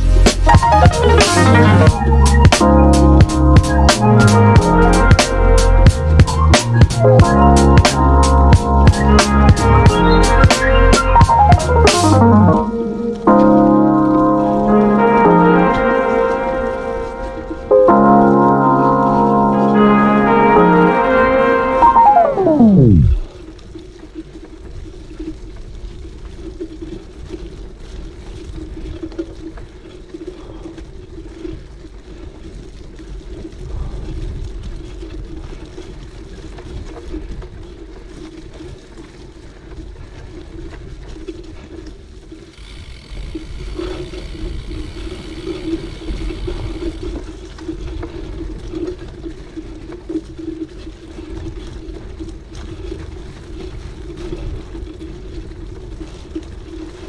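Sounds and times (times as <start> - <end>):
bike tyres humming on gravel: 0.0 - 57.0
higher buzz: 14.7 - 23.3.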